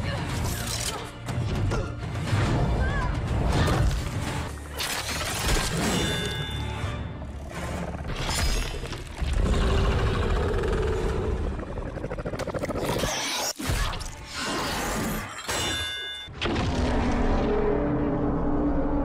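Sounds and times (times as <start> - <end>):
soundtrack music: 0.0 - 9.1.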